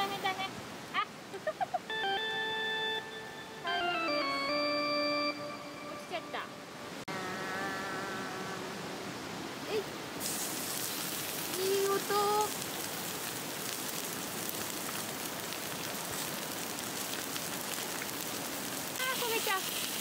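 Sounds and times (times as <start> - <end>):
steak sizzling on a grill: 10.2 - 20.0.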